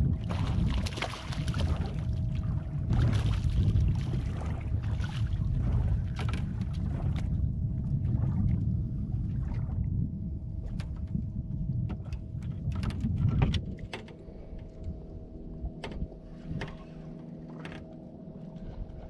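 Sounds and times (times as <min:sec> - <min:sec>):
water rushing and splashing: 0:00.0 - 0:07.2
boat engine rumble: 0:00.0 - 0:19.0
faint constant hum: 0:00.0 - 0:19.0.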